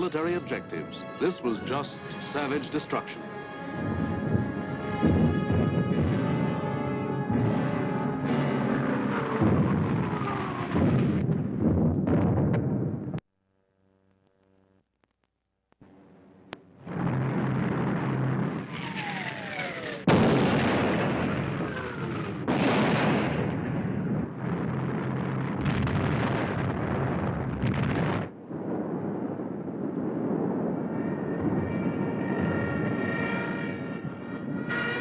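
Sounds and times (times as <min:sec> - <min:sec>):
heavy rumble: 0:03.7 - 0:13.2, 0:15.8 - 0:34.8
explosions: 0:04.9 - 0:13.2, 0:16.8 - 0:34.6.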